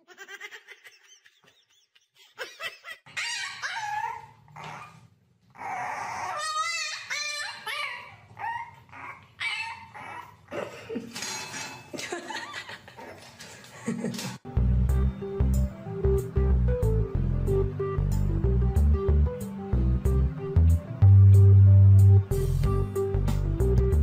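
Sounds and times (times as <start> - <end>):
puppy whining and yelping: 3.0 - 10.5.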